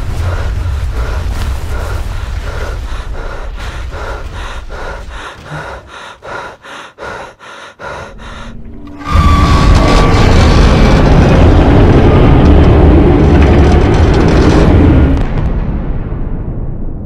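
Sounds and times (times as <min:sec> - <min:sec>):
person panting: 0:00.0 - 0:08.7
loud rumble: 0:00.0 - 0:17.0
low rumble: 0:00.0 - 0:17.0.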